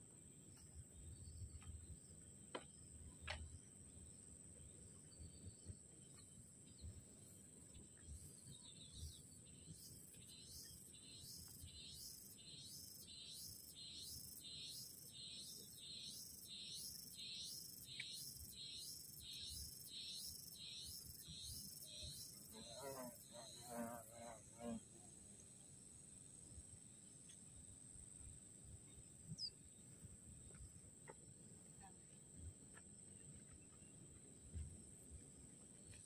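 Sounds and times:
pulsing insect chorus: 0:09.0 - 0:24.8.

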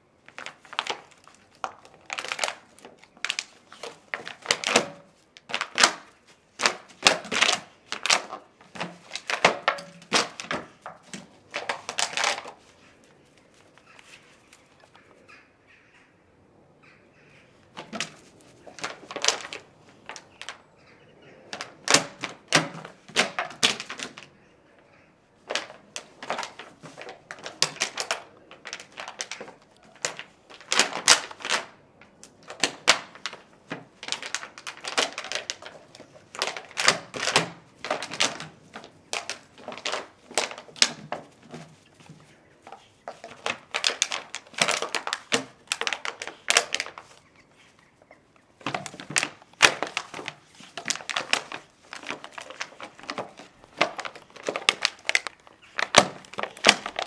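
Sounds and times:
plastic bottle crackling: 0:00.0 - 0:12.8, 0:17.7 - 0:20.7, 0:21.4 - 0:24.3, 0:25.4 - 0:47.7, 0:48.6 - 0:57.0.

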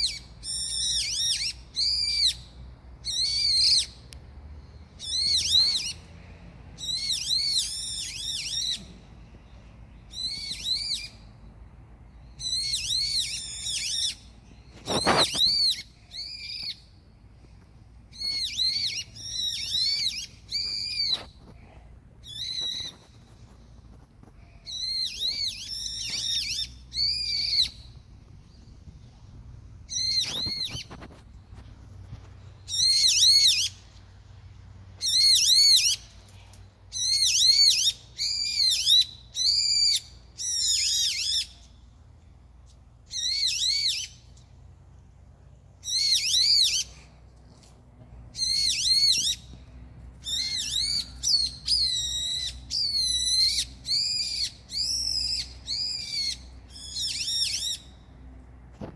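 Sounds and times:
songbird singing whistled notes: 0:00.0 - 0:04.2, 0:04.8 - 0:06.0, 0:06.8 - 0:11.4, 0:12.1 - 0:17.0, 0:18.1 - 0:21.5, 0:22.2 - 0:24.0, 0:24.6 - 0:29.1, 0:29.8 - 0:31.2, 0:32.6 - 0:33.8, 0:36.9 - 0:41.8, 0:43.1 - 0:44.4, 0:45.8 - 0:47.0, 0:48.3 - 0:58.1.

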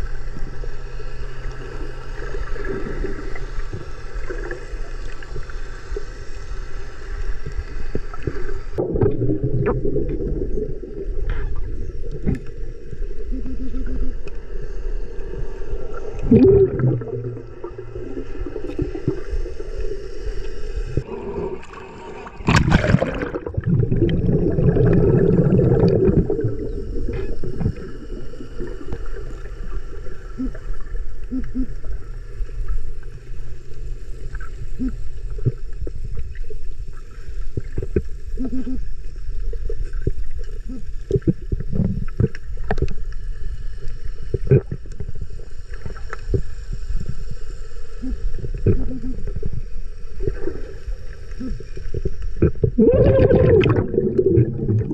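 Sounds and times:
underwater low rumble: 0:00.0 - 0:54.9
water rushing surge: 0:16.2 - 0:19.7, 0:20.9 - 0:28.7, 0:52.8 - 0:54.9.

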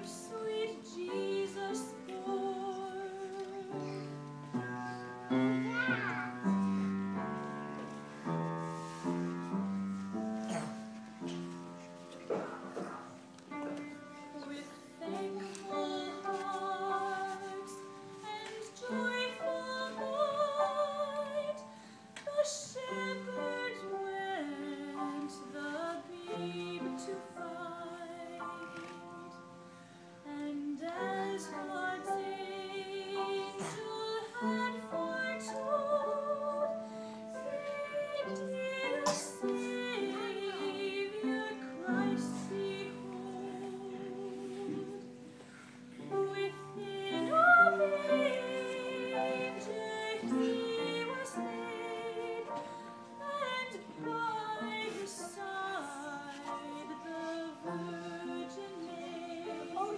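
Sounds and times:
woman singing operatically: 0:00.0 - 0:03.7, 0:30.3 - 0:36.7, 0:37.4 - 0:45.0, 0:46.2 - 0:52.5, 0:53.2 - 0:59.9.

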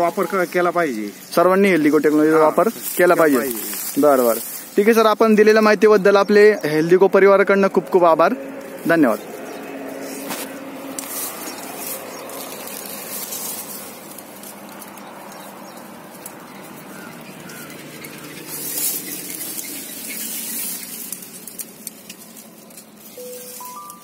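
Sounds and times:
dry leaves rustling and crackling: 0:00.0 - 0:24.0.

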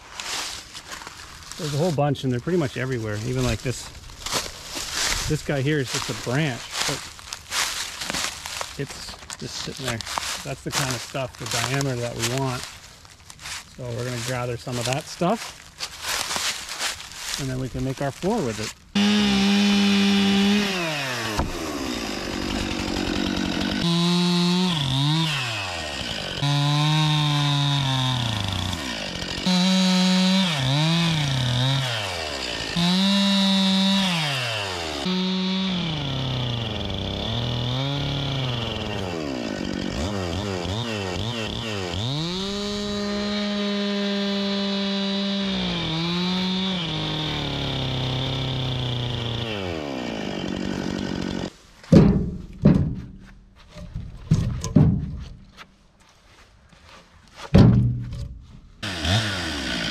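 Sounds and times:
chainsaw cutting log: 0:04.2 - 0:12.8, 0:13.4 - 0:51.6, 0:58.8 - 0:59.9.

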